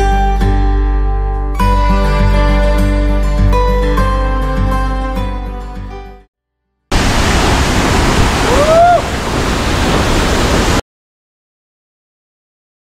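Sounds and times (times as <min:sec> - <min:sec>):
background music: 0:00.0 - 0:06.3
loud rushing noise: 0:06.9 - 0:10.8.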